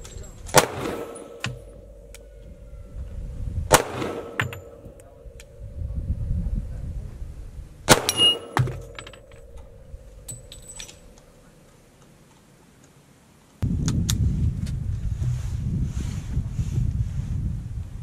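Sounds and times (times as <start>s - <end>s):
faint metallic clinks: 0.0s - 2.7s, 4.2s - 5.6s, 8.1s - 11.8s
pistol shot: 0.5s - 1.9s, 3.7s - 5.0s, 7.9s - 9.6s
echoing crack: 0.6s - 2.3s, 3.7s - 5.6s, 7.9s - 10.3s
wind noise on microphone: 1.6s - 11.2s, 13.6s - 18.0s
metallic ring: 4.0s - 5.8s, 7.9s - 11.4s.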